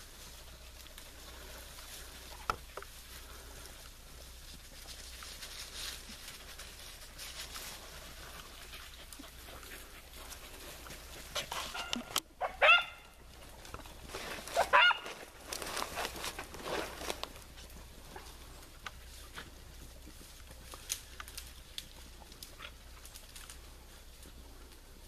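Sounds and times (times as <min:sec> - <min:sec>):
faint rustling of brush: 0:00.0 - 0:25.0
dog barking: 0:11.7 - 0:13.2, 0:14.6 - 0:15.1.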